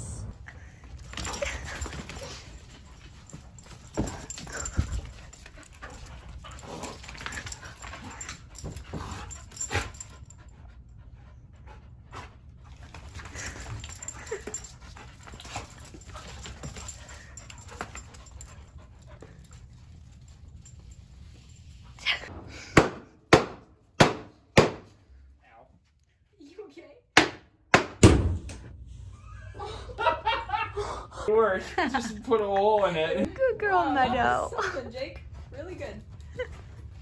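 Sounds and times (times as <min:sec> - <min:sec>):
dogs panting: 0:00.4 - 0:22.3, 0:33.6 - 0:37.0
dogs scuffling: 0:00.9 - 0:10.1, 0:12.7 - 0:21.7.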